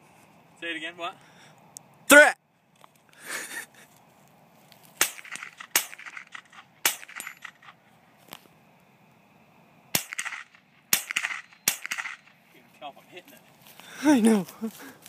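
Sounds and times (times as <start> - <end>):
rifle shots with ringing tail: 5.0 - 7.8, 9.9 - 12.4.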